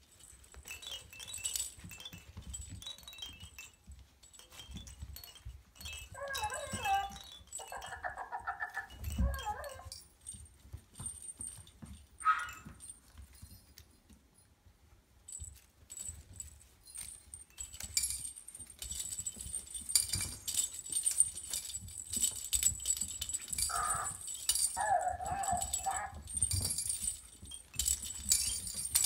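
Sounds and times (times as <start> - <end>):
jingle bell toys rattling: 0.0 - 14.5, 15.2 - 29.0
puppy yip: 12.2 - 12.8, 23.7 - 24.2.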